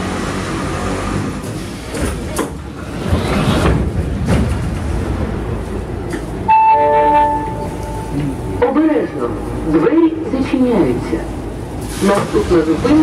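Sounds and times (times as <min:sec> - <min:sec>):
sliding doors knocking open: 0:01.2 - 0:05.6.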